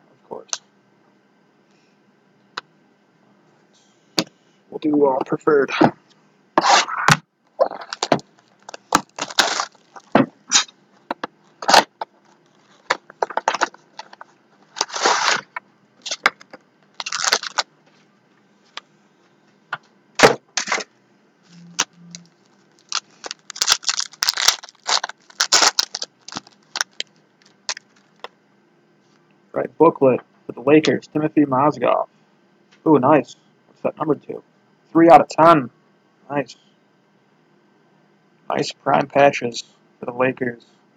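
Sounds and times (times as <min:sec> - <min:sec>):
plastic wrap crinkling and tearing: 0:07.8 - 0:10.7, 0:11.6 - 0:17.7, 0:21.7 - 0:28.3.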